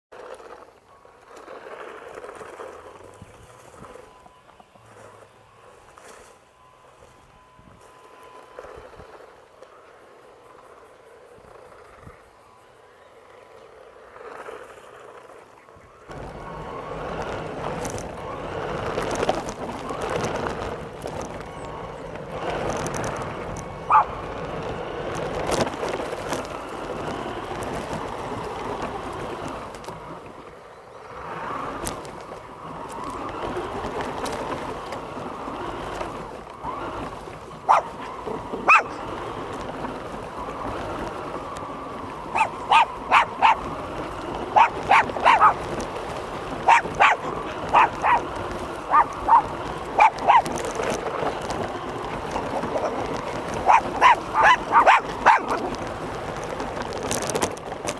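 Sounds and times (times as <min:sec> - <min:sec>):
steady background noise: 0:00.1 - 0:57.9
small dog barking: 0:23.9 - 0:24.1, 0:37.7 - 0:38.0, 0:38.6 - 0:39.0, 0:42.3 - 0:43.7, 0:44.5 - 0:45.6, 0:46.6 - 0:50.7, 0:52.8 - 0:55.8.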